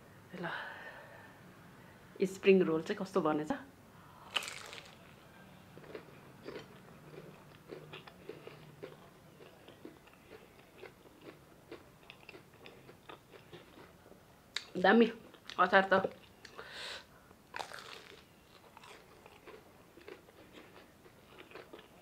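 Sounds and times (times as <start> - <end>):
crunchy bite: 4.3 - 5.0, 17.6 - 20.2
chewing crunches: 4.3 - 5.1, 5.8 - 13.9, 17.5 - 22.0.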